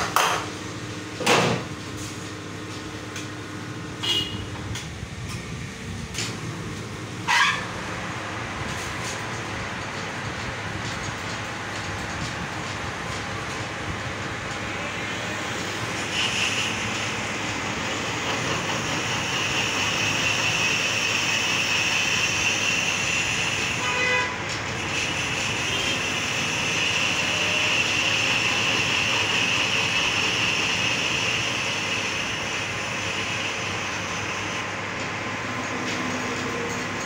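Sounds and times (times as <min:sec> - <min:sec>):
metal lathe running: 0:04.9 - 0:37.0
high-pitched cutting whine: 0:14.7 - 0:24.1, 0:24.7 - 0:34.8.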